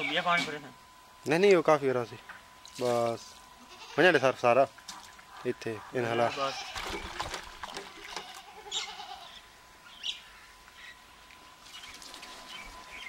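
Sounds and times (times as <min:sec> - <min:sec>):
goat bleating: 0:03.6 - 0:04.2, 0:06.0 - 0:07.0, 0:07.9 - 0:09.4.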